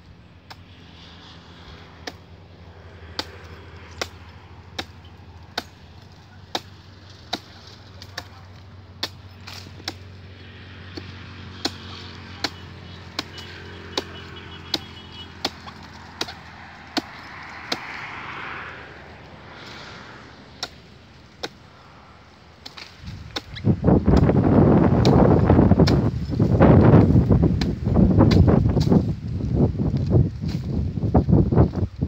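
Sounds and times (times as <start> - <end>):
blade chopping palm trunk: 2.0 - 2.3, 3.0 - 18.5, 20.6 - 21.8, 22.6 - 30.9.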